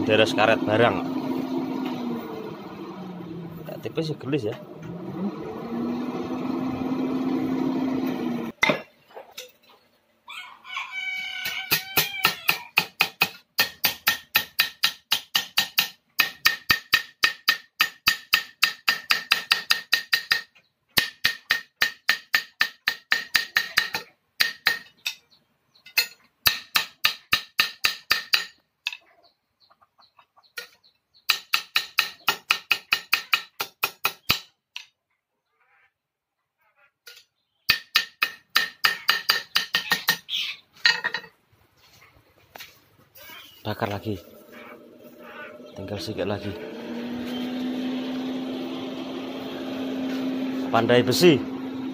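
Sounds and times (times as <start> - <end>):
rooster crowing: 10.3 - 12.7
hammer striking hot metal: 12.8 - 20.4, 37.7 - 39.9.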